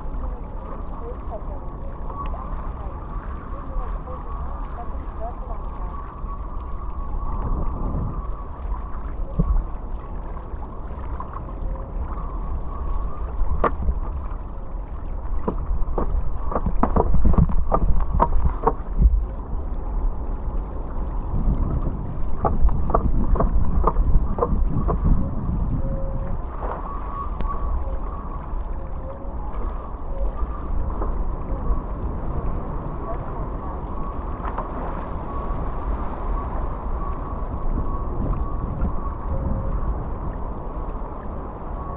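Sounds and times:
rushing water: 0:00.0 - 0:41.9
wind buffeting microphone: 0:00.0 - 0:41.9
water slaps and splashes: 0:12.9 - 0:19.3, 0:21.0 - 0:25.3, 0:33.1 - 0:35.2.

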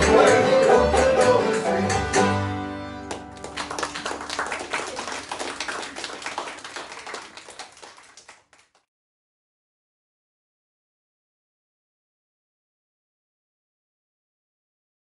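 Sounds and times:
string band playing: 0:00.0 - 0:04.4
applause: 0:03.1 - 0:08.9.

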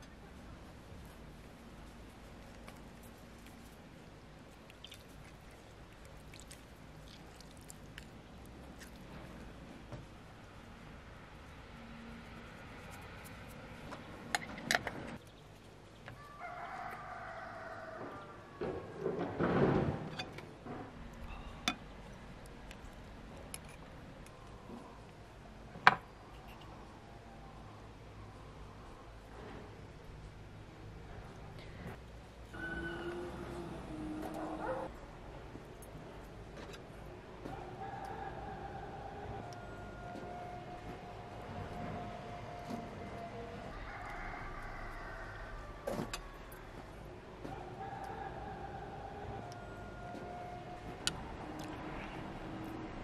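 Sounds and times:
wet squishing of lemon: 0:02.3 - 0:09.6
juice dripping into soup: 0:04.5 - 0:09.1.

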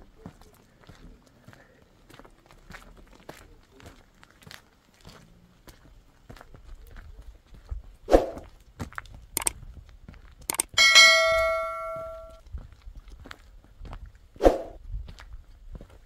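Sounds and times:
short clicks: 0:10.5 - 0:10.8
bright bell-like ding: 0:10.8 - 0:12.4.

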